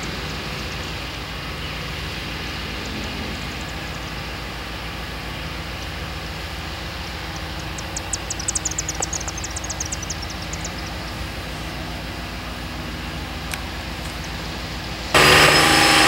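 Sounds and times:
low machine hum: 0.0 - 16.0
blade grinding gravel: 15.1 - 16.0.

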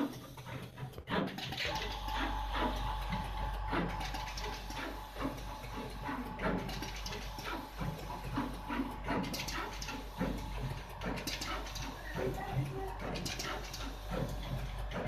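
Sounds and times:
placement head motors whirring: 0.0 - 15.0
machine clicks: 9.1 - 15.0.

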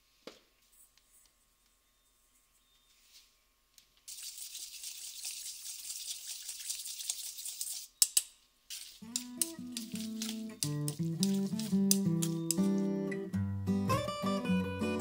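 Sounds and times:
stirring in metal bowl: 4.1 - 8.0, 8.7 - 12.9.

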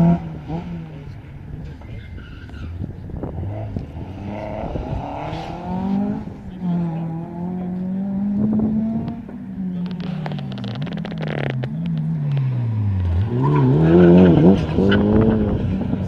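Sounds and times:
rally car engine: 0.0 - 16.0
sharp exhaust cracks: 9.8 - 12.5.

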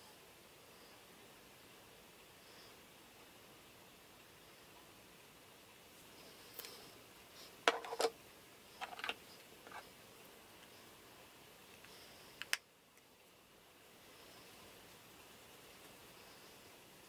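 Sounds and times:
plastic makeup containers clicking: 8.8 - 9.8.

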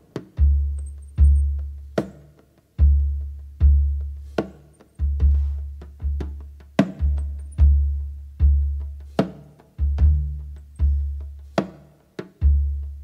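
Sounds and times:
sharp clicking percussion: 0.1 - 3.4, 4.1 - 8.1.

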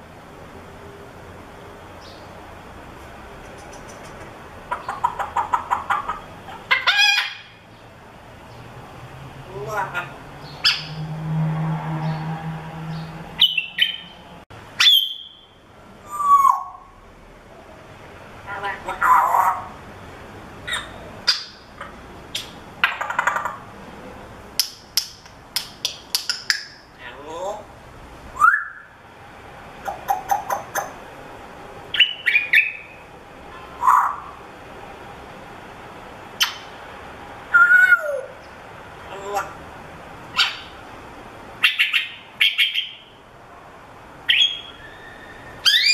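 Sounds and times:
parrot whistling and chirping: 10.6 - 11.0, 13.4 - 14.1, 14.8 - 16.9, 28.4 - 29.0, 31.9 - 33.0, 36.4 - 36.7, 37.5 - 38.3, 44.3 - 45.9
parrot whistling: 14.8 - 15.4, 28.4 - 28.9, 37.5 - 38.3, 44.3 - 45.9.

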